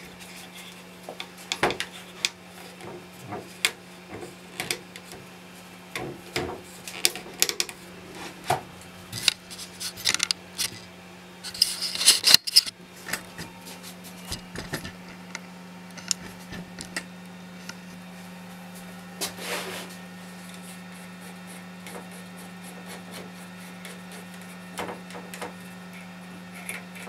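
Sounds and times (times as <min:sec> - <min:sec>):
steady low hum: 0:00.0 - 0:27.0
scraping rustle: 0:06.6 - 0:15.0, 0:19.2 - 0:20.9.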